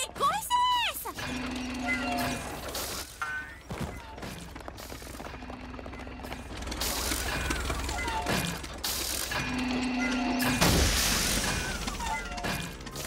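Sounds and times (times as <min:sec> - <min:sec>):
cartoon machine ratcheting and clanking: 0:01.0 - 0:03.2, 0:05.7 - 0:13.0.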